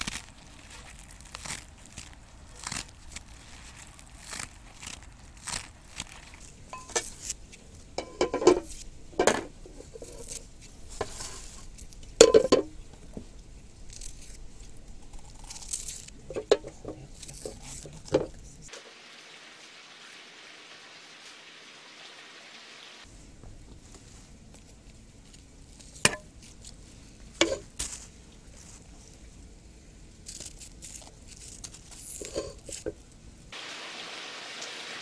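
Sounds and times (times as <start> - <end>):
dry onion skin crackling: 0.0 - 18.6, 23.9 - 29.3, 30.0 - 33.2.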